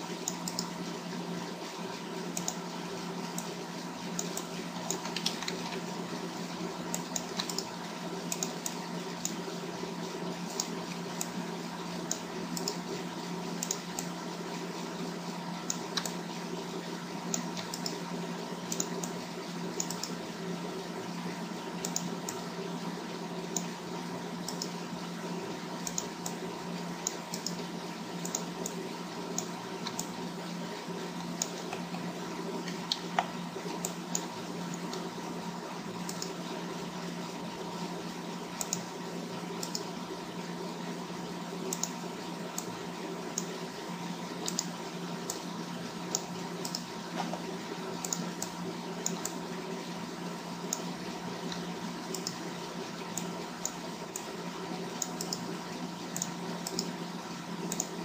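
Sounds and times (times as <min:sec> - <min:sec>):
steady electrical hum: 0:00.0 - 0:58.0
keyboard and mouse clicks: 0:00.2 - 0:00.7, 0:02.4 - 0:02.6, 0:04.1 - 0:05.9, 0:06.9 - 0:07.7, 0:08.3 - 0:09.4, 0:10.5 - 0:11.4, 0:12.0 - 0:12.8, 0:13.6 - 0:14.2, 0:15.6 - 0:16.2, 0:17.3 - 0:18.0, 0:18.7 - 0:19.2, 0:19.8 - 0:20.2, 0:21.8 - 0:22.4, 0:23.5 - 0:23.7, 0:24.4 - 0:24.8, 0:25.8 - 0:26.4, 0:27.0 - 0:30.2, 0:31.2 - 0:32.0, 0:32.6 - 0:35.1, 0:36.0 - 0:36.4, 0:38.6 - 0:38.9, 0:39.6 - 0:39.9, 0:41.7 - 0:42.7, 0:44.4 - 0:45.4, 0:46.1 - 0:47.4, 0:48.0 - 0:49.4, 0:50.7 - 0:52.4, 0:53.1 - 0:54.3, 0:54.9 - 0:55.5, 0:56.1 - 0:56.9, 0:57.6 - 0:58.0.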